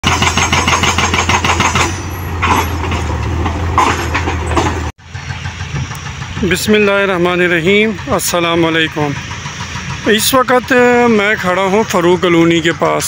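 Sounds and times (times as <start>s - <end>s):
hydraulic breaker hammering concrete: 0.0s - 2.6s
diesel engine running: 0.0s - 13.0s.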